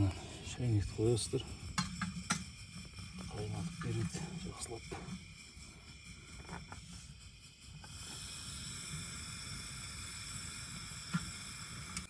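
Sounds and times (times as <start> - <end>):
camping stove gas hissing: 0.0 - 12.0.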